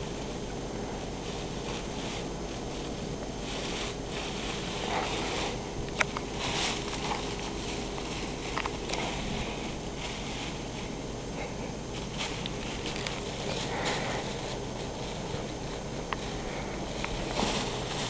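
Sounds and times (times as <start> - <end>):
steady background hum: 0.0 - 18.0
cat scraping in litter box: 1.2 - 10.9.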